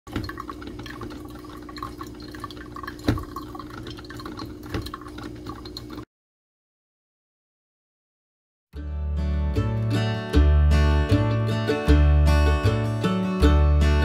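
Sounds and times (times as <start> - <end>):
coffee dripping into carafe: 0.1 - 6.0.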